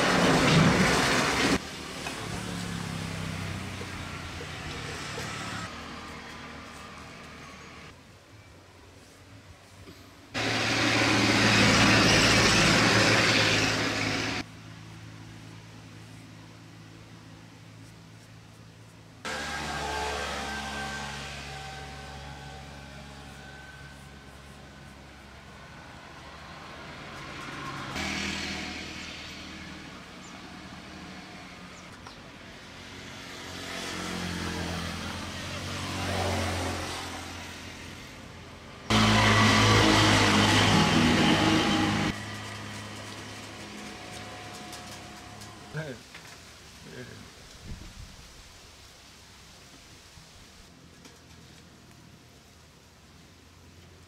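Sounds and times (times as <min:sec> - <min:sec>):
motor vehicle passing close: 0:00.0 - 0:08.0, 0:10.4 - 0:15.6, 0:19.2 - 0:46.0.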